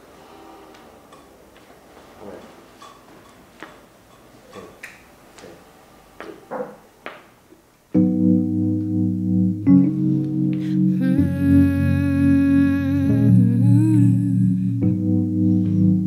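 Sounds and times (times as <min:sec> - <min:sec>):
keyboard held chord: 0:08.0 - 0:16.0.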